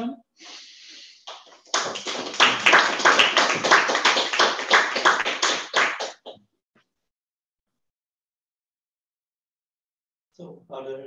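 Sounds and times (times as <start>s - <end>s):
audience applauding: 1.2s - 6.3s.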